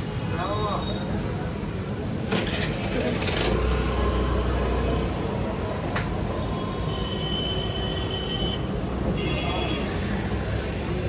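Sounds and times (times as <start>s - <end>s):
low traffic rumble: 0.0s - 11.0s.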